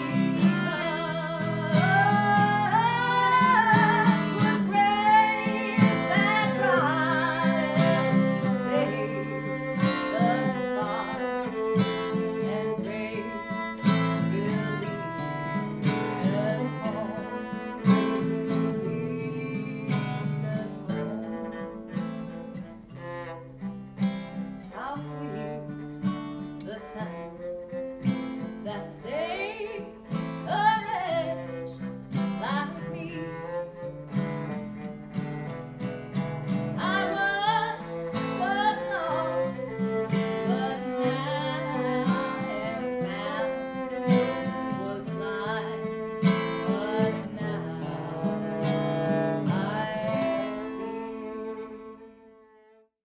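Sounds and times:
person singing slow song: 0:00.0 - 0:21.8, 0:36.8 - 0:52.0
acoustic guitar: 0:00.0 - 0:52.9
viola: 0:00.0 - 0:53.0.

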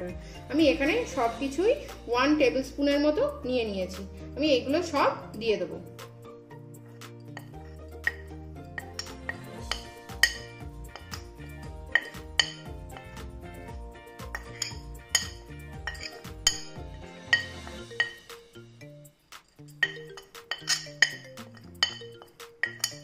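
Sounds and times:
metal spoon scraping ceramic plate: 0:07.3 - 0:13.2, 0:14.2 - 0:18.3, 0:19.7 - 0:23.0.

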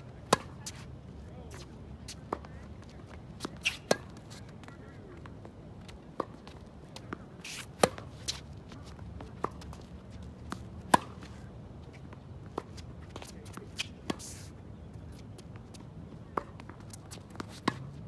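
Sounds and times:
tennis ball bouncing: 0:00.2 - 0:00.8, 0:01.6 - 0:14.4, 0:15.4 - 0:18.0
rackets striking tennis ball: 0:03.2 - 0:04.4, 0:06.2 - 0:08.4, 0:09.4 - 0:11.5.

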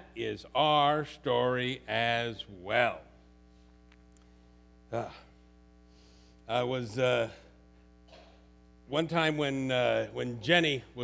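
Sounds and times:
man speaking: 0:00.0 - 0:03.2, 0:04.9 - 0:05.4, 0:06.5 - 0:07.6, 0:08.9 - 0:11.0
faint mains hum: 0:00.0 - 0:11.0.

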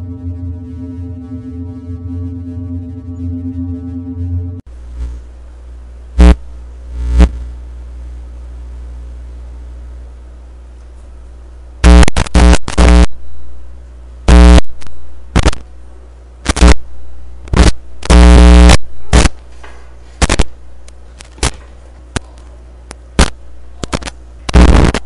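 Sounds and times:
low steady hum: 0:00.0 - 0:25.0
electric zaps: 0:11.8 - 0:13.1, 0:16.4 - 0:16.8, 0:20.2 - 0:20.5, 0:23.2 - 0:25.0.

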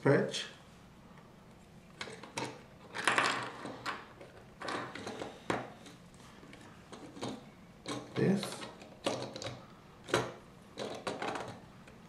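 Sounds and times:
plastic pieces clicking: 0:06.9 - 0:12.0.

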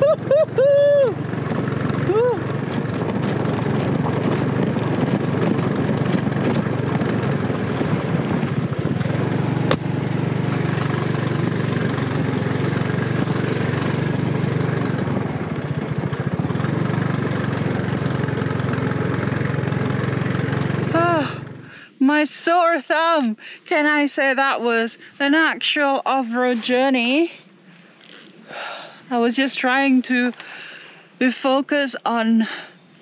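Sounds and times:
motorbike engine running: 0:00.0 - 0:22.0.

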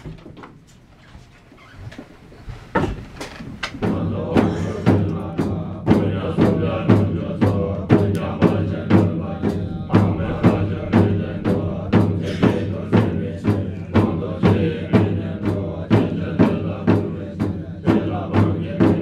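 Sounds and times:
drum struck in steady beat: 0:03.8 - 0:19.0
low sustained drone: 0:08.2 - 0:15.2.

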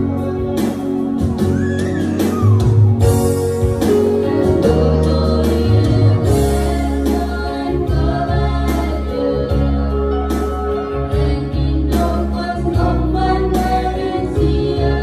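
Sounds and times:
instrumental backing with bass: 0:00.0 - 0:15.0
gospel singing: 0:03.0 - 0:15.0.

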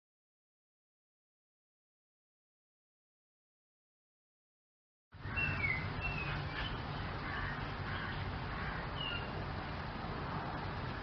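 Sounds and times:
bird chirps: 0:05.2 - 0:08.3, 0:08.9 - 0:09.4.

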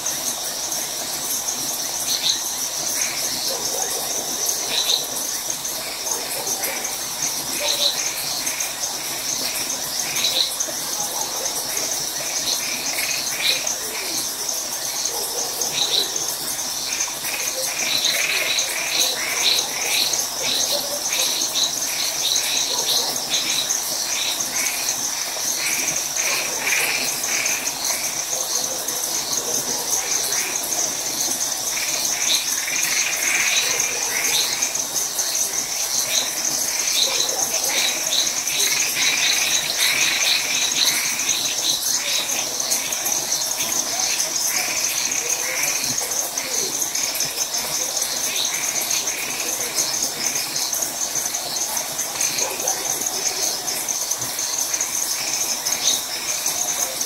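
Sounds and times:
crickets trilling: 0:00.0 - 0:57.0
tree frogs calling: 0:00.0 - 0:57.0.

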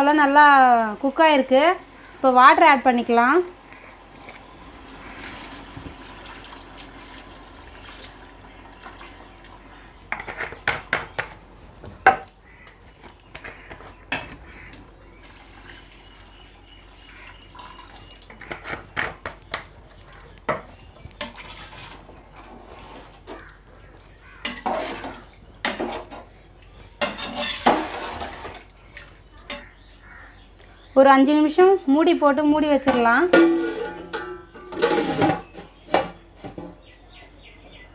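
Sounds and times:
water pouring into metal pot: 0:15.2 - 0:18.3
ladle clinking against pot: 0:33.4 - 0:35.4.

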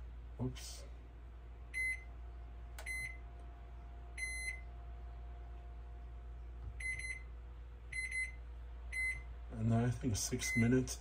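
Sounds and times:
faint steady hum: 0:00.0 - 0:11.0
microwave keypad beeps: 0:01.7 - 0:02.1, 0:02.8 - 0:03.2, 0:04.2 - 0:04.7, 0:06.8 - 0:07.3, 0:07.9 - 0:09.3, 0:10.4 - 0:10.8.

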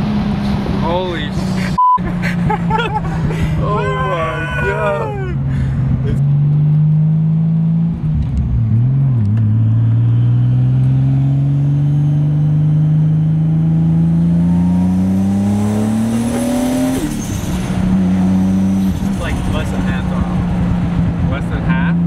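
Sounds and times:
car engine revving in cabin: 0:05.7 - 0:22.0.

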